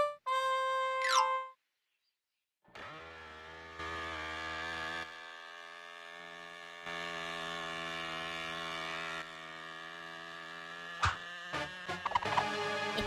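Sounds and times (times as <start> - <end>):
small motor buzzing hum: 2.7 - 13.0.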